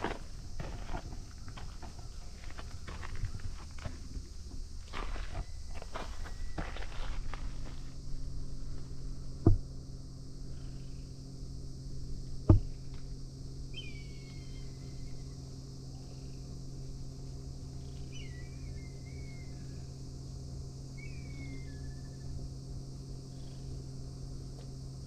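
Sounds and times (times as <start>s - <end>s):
steady low hum: 0.0s - 25.0s
sharp thumps: 9.4s - 9.7s
bird calling whistled notes: 13.7s - 15.2s, 18.1s - 19.8s, 21.0s - 22.3s.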